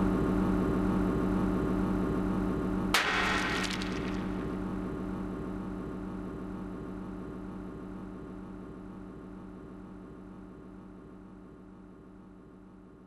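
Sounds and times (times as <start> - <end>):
microwave oven humming: 0.0 - 2.9.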